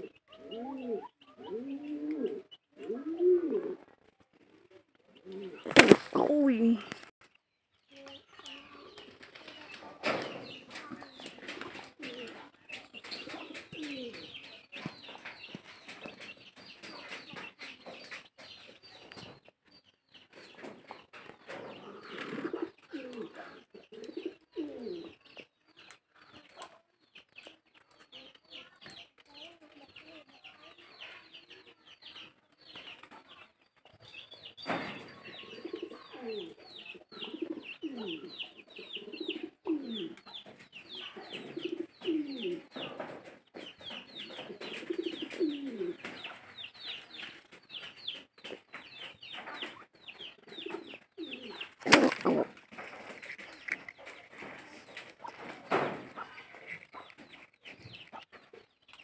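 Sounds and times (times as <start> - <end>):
pigeons cooing: 0.0 - 7.0, 10.0 - 15.5, 20.3 - 25.4, 34.9 - 58.6.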